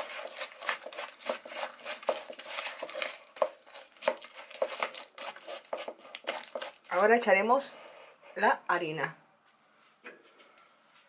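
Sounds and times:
utensil beating batter in bowl: 0:00.0 - 0:07.6.

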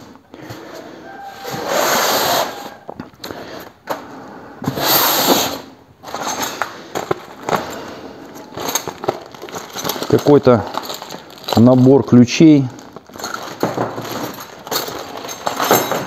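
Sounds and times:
plastic packaging crinkling: 0:07.2 - 0:15.6.

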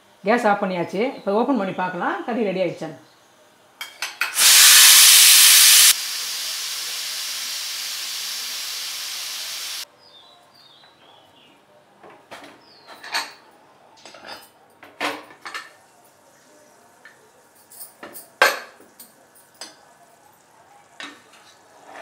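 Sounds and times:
pressure cooker hissing steam: 0:04.4 - 0:09.8.

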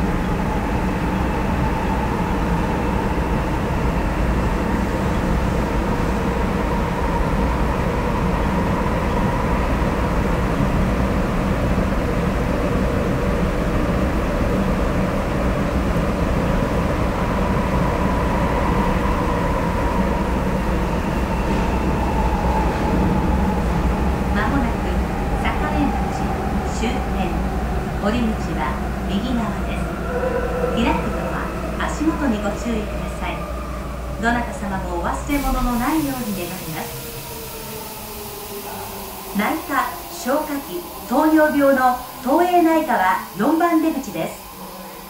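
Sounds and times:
subway train rumble: 0:00.0 - 0:45.0.

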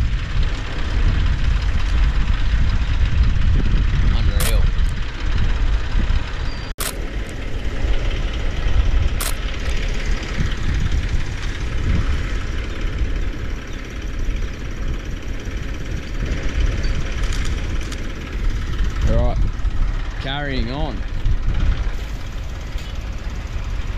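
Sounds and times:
vehicle engine rumbling: 0:00.0 - 0:23.9
sharp click: 0:04.4 - 0:05.0, 0:06.8 - 0:07.4, 0:09.2 - 0:09.4.

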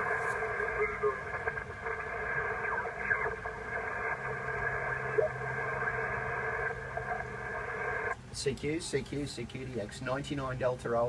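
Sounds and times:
radio receiver hiss: 0:00.0 - 0:08.2
faint radio signals: 0:00.0 - 0:09.8
low steady hum: 0:00.0 - 0:11.0.

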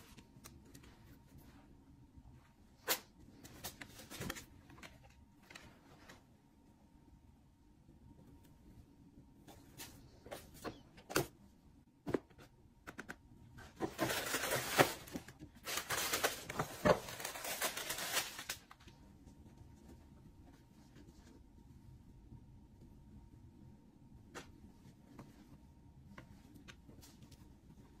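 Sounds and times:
paper bag and tissue rustling: 0:13.8 - 0:19.0.

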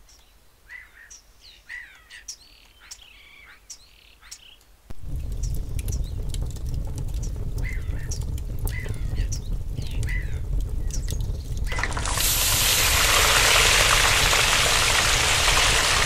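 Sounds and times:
birds chirping: 0:00.0 - 0:16.0
steady low rumble: 0:04.9 - 0:16.0.

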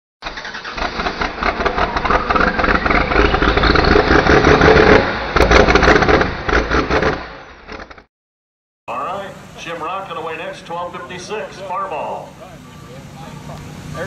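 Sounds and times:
loud engine revving: 0:00.4 - 0:08.1, 0:12.5 - 0:14.0.

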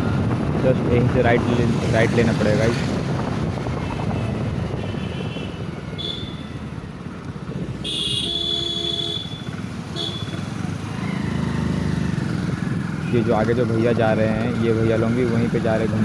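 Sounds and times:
wind noise: 0:00.0 - 0:08.1
motorcycle engine running: 0:03.0 - 0:16.0
horn beeps: 0:06.0 - 0:06.5.

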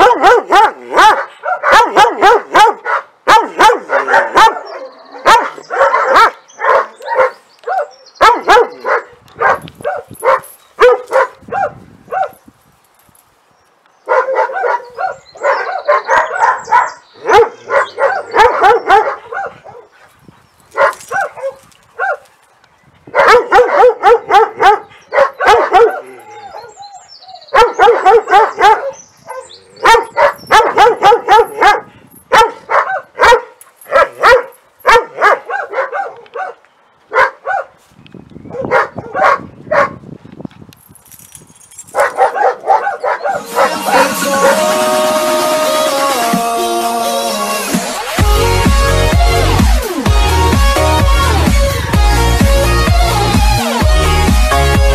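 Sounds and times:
dog barking: 0:00.0 - 0:12.4, 0:14.1 - 0:19.9, 0:20.8 - 0:22.3, 0:23.1 - 0:26.7, 0:27.5 - 0:37.7, 0:38.5 - 0:40.0, 0:41.9 - 0:44.6.

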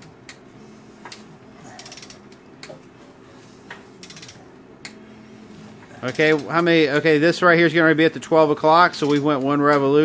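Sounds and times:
ratchet pawl clicking: 0:01.8 - 0:02.4, 0:04.0 - 0:04.4, 0:06.0 - 0:06.6, 0:08.9 - 0:09.8.

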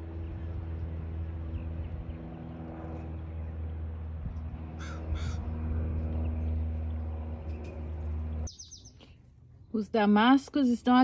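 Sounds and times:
steady low hum: 0:00.0 - 0:10.2
crow cawing: 0:04.8 - 0:05.5.

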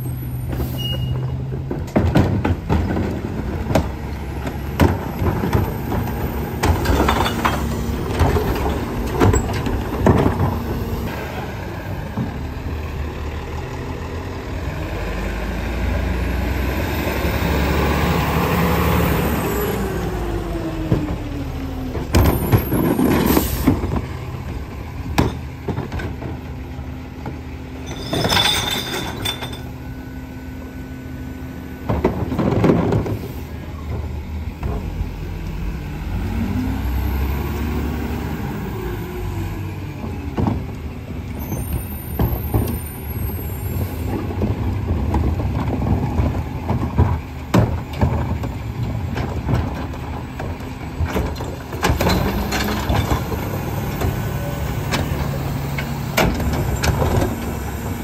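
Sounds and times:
diesel engine revving: 0:00.0 - 0:27.8, 0:29.6 - 0:58.0
carts banging into hopper: 0:00.6 - 0:10.8, 0:31.8 - 0:33.3, 0:44.1 - 0:57.6.

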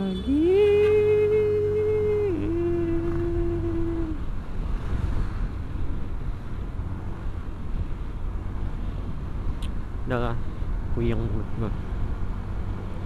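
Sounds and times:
wind on microphone: 0:00.0 - 0:10.0
motorcycle road noise: 0:00.0 - 0:13.0.

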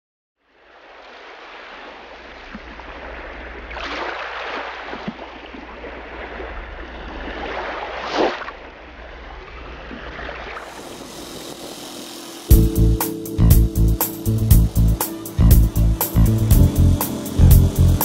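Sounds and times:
rushing water: 0:00.5 - 0:12.5
steady low hum: 0:10.6 - 0:18.0.

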